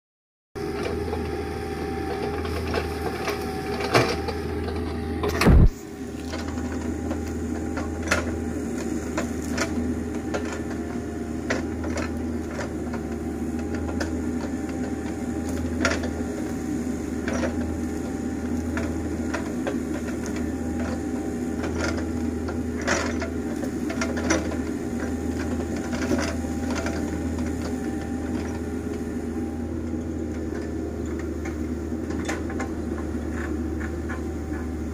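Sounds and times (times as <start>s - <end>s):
excavator diesel engine running: 0.6s - 34.9s
loud thump: 5.4s - 5.8s.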